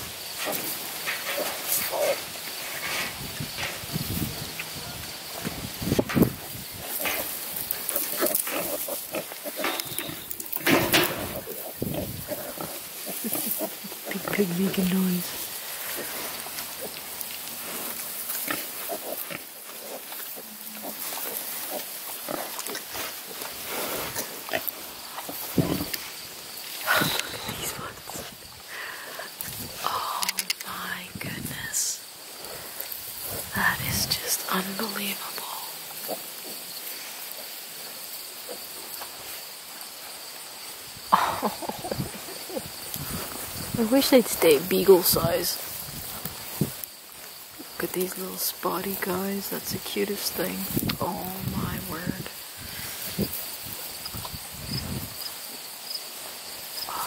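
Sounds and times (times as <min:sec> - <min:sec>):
insects chirring in grass: 0:00.0 - 0:57.0
pigs grunting: 0:06.8 - 0:14.6, 0:15.5 - 0:26.0.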